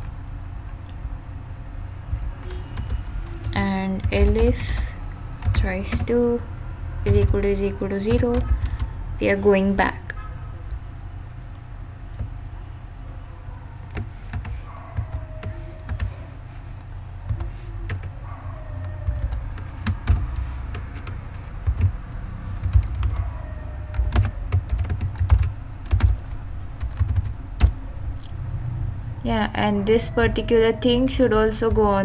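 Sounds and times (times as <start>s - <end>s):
low steady hum: 0.0s - 32.0s
computer keyboard typing: 2.1s - 6.4s, 7.1s - 8.9s, 12.1s - 12.4s, 13.8s - 27.8s.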